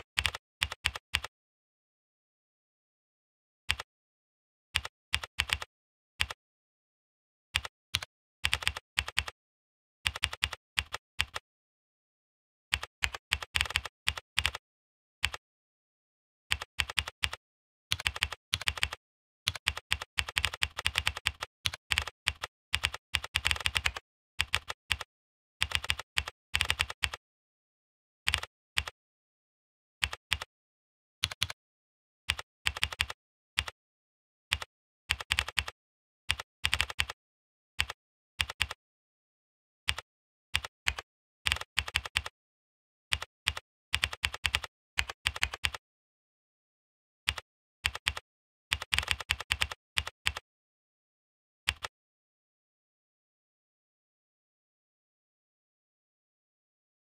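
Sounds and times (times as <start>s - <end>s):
typing on a computer keyboard: 0.2s - 1.3s, 4.8s - 6.4s, 7.6s - 9.4s, 10.1s - 11.4s, 12.8s - 14.6s, 16.5s - 27.2s, 28.3s - 29.0s, 30.0s - 30.5s, 31.2s - 31.6s, 32.3s - 33.8s, 34.5s - 37.2s, 37.8s - 38.8s, 40.6s - 42.3s, 43.1s - 45.8s, 47.3s - 50.4s, 51.7s - 51.9s.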